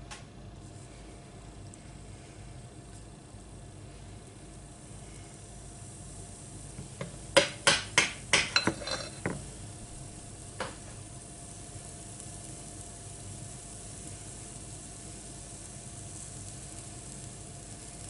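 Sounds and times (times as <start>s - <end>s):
faint batter sizzle: 0.0s - 18.0s
spoon clinking on glass bowl: 8.4s - 9.4s.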